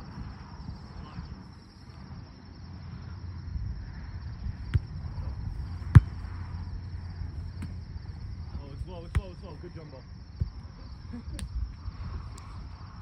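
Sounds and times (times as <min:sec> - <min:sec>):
insects chirring: 0:00.0 - 0:13.0
volleyball being struck: 0:05.8 - 0:06.3.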